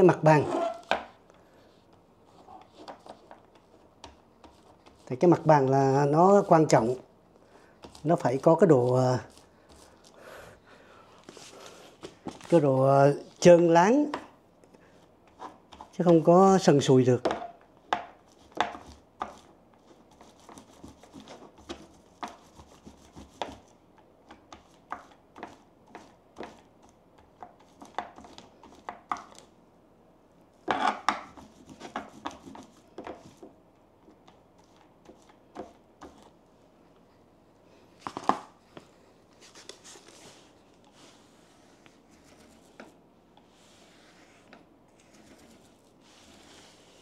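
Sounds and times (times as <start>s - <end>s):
paint roller in plastic tray: 39.4s - 47.0s.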